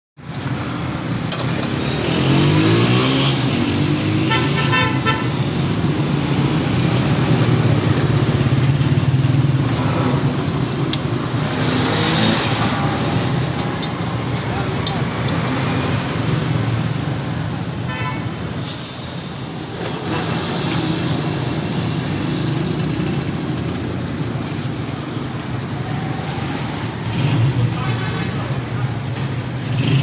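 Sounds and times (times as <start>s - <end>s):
horn honking: 4.0s - 5.5s.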